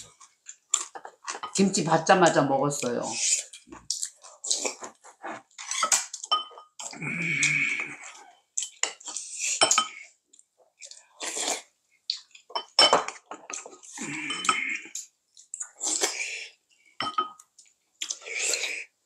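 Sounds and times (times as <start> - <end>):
utensils clinking on dishes: 5.6 - 6.8, 12.5 - 14.8, 17.0 - 17.4.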